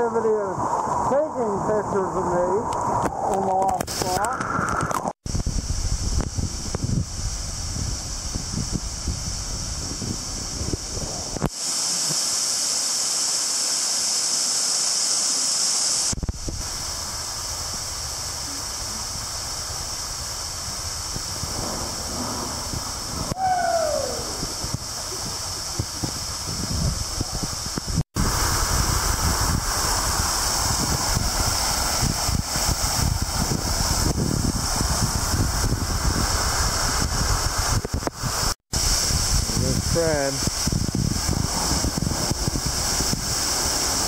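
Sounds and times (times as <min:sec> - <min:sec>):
waterfall rushing and splashing: 0:10.7 - 0:44.0.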